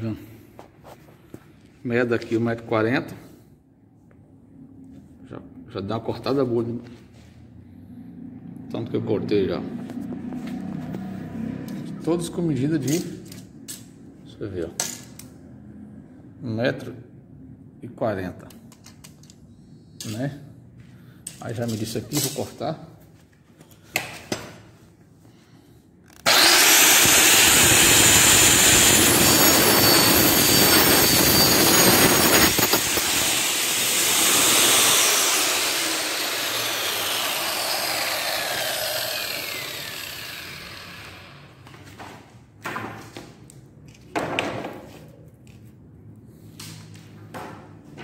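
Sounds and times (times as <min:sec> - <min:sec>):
electric saw cutting wood: 0:26.2 - 0:41.7.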